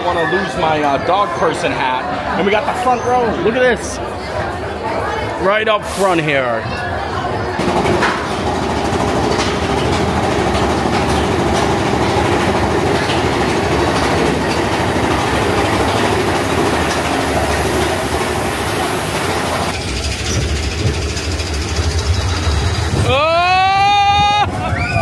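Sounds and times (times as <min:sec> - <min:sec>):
roller coaster wheels on rails: 0:06.7 - 0:25.0
high hiss: 0:15.0 - 0:20.3.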